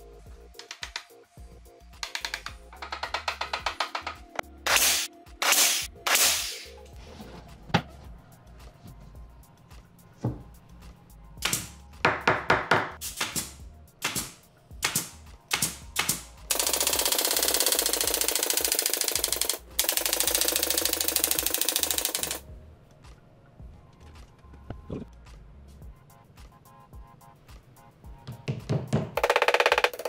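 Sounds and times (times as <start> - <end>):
nail gun shots into plywood: 4.7 - 6.7, 11.4 - 11.8, 12.6 - 16.2.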